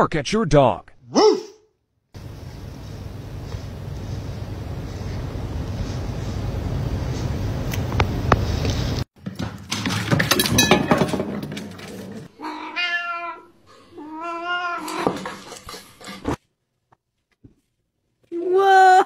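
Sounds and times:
cat meowing: 12.4 - 15.0.

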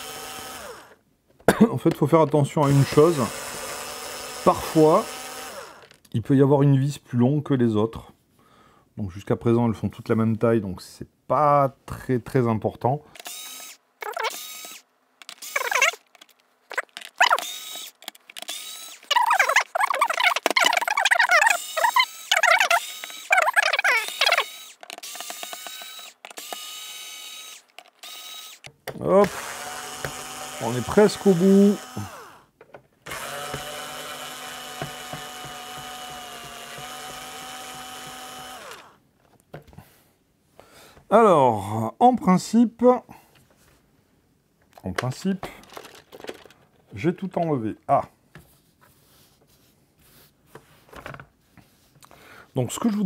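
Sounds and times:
electric screwdriver whirring: 0.0 - 1.0, 2.6 - 6.0, 13.2 - 32.5, 33.1 - 39.0
screws squeaking in plastic: 13.2 - 32.4, 33.1 - 39.0.

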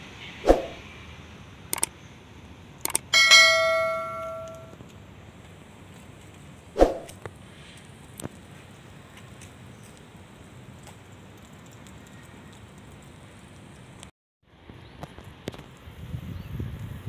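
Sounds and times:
bright bell ding: 3.2 - 4.7.

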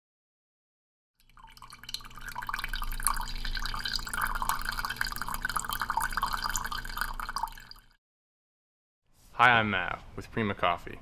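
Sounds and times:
coffee pouring into mug: 1.2 - 8.0
low steady hum: 1.4 - 7.9.

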